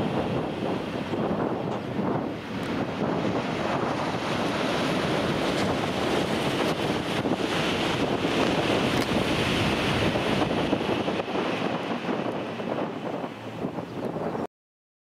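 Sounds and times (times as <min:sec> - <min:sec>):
wind buffeting microphone: 0:00.0 - 0:14.5
train rushing past: 0:02.2 - 0:13.5.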